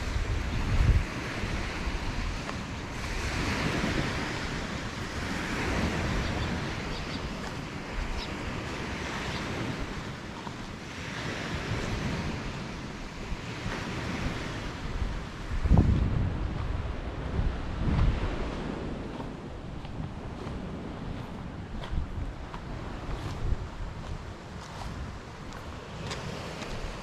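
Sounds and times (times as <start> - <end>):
waves washing onto beach: 0.0 - 27.0
wind rumbling on microphone: 0.0 - 27.0.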